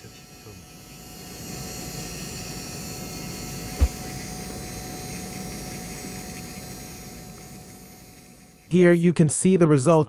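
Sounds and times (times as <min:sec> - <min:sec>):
rotary handpiece humming: 0:00.0 - 0:08.9
short low thump: 0:03.8 - 0:04.0.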